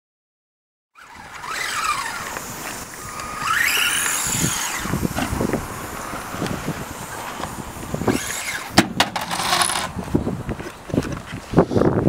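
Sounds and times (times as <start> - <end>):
rc car motor whining: 1.0 - 11.3
toy car knocking over ramp: 8.1 - 10.0.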